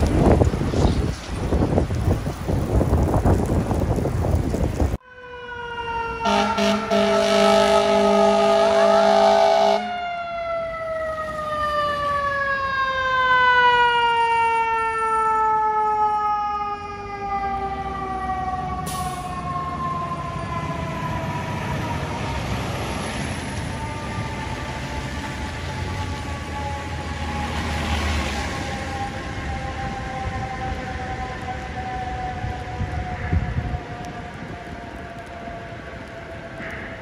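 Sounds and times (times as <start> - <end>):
truck engine rumble: 0.0 - 5.0
traffic: 0.0 - 37.0
fire engine air horn: 5.0 - 16.4, 17.6 - 19.5
mechanical siren wail: 5.0 - 36.7.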